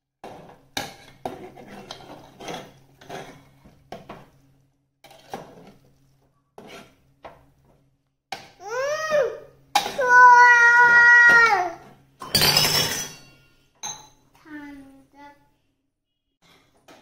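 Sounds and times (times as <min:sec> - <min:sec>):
spoon scraping metal pot: 0:00.2 - 0:03.6, 0:06.6 - 0:07.1.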